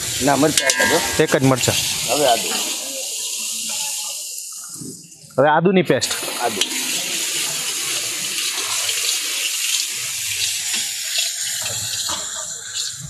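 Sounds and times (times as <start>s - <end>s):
food sizzling in hot oil: 0.0s - 5.4s, 6.0s - 13.0s
metal spatula scraping pan: 0.6s - 1.9s.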